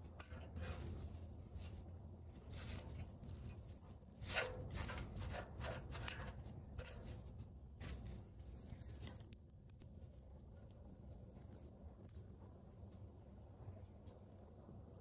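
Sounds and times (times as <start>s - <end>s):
paper burning crackling: 0.0s - 12.8s
low steady rumble: 0.0s - 15.0s.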